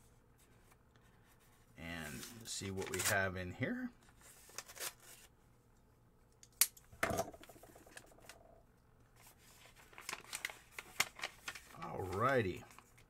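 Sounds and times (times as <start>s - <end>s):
envelope being opened: 4.2s - 5.3s, 9.2s - 13.0s.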